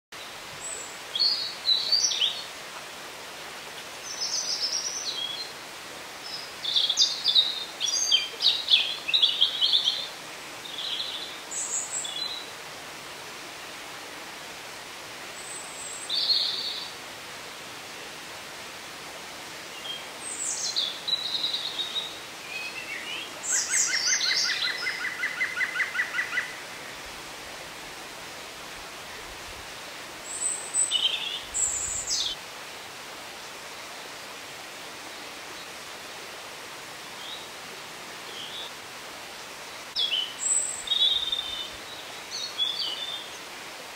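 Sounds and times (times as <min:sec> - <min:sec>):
songbirds singing: 0:00.2 - 0:02.5, 0:06.2 - 0:12.5, 0:19.6 - 0:27.1, 0:29.2 - 0:34.2, 0:39.4 - 0:43.5
background hiss: 0:00.2 - 0:43.9.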